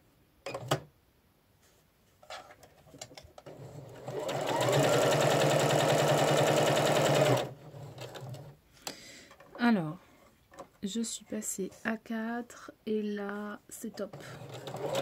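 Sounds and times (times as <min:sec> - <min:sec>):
sewing machine stitching: 0:03.4 - 0:08.6, 0:14.0 - 0:15.0.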